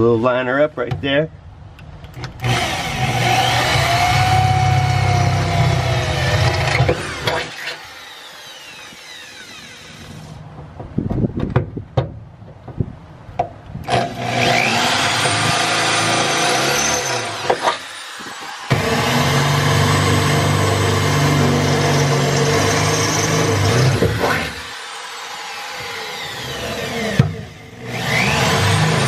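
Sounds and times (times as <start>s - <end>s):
electric drill boring into steel: 2.4s - 10.4s, 13.9s - 29.0s.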